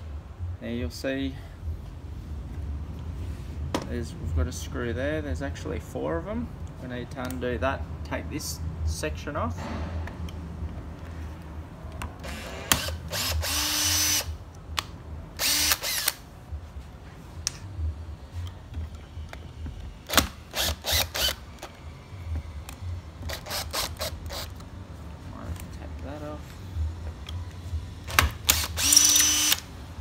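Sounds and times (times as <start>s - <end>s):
cordless drill whining: 12.2s - 14.3s, 15.4s - 16.2s, 20.5s - 21.4s, 28.5s - 29.7s
drill clicking spurts: 28.4s - 29.7s.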